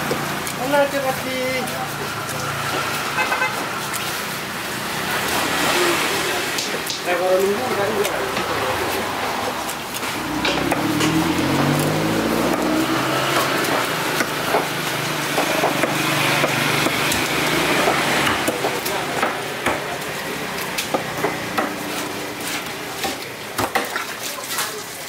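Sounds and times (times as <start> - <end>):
busy market background noise: 0.0 - 25.0
sharp clicks and knocks: 9.9 - 12.7.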